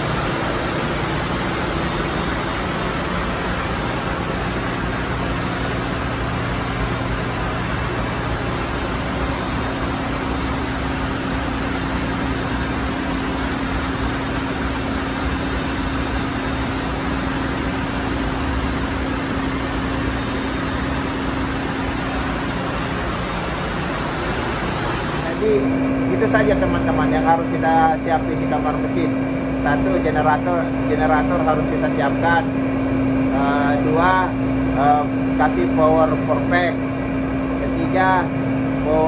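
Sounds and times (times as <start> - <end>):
engine room machinery roar: 0.0 - 39.0
low machine hum: 0.0 - 39.0.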